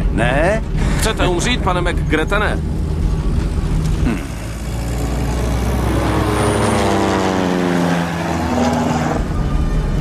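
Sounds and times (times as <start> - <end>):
propeller plane flying overhead: 0.6 - 10.0.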